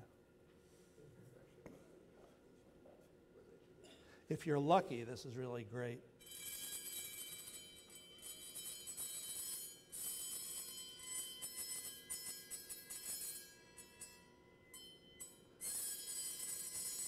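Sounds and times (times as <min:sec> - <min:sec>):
metal plate ringing shrilly: 0:06.2 - 0:17.0.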